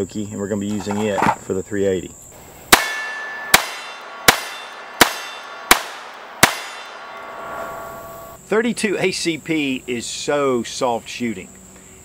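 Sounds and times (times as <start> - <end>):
pistol shots: 2.7 - 8.2.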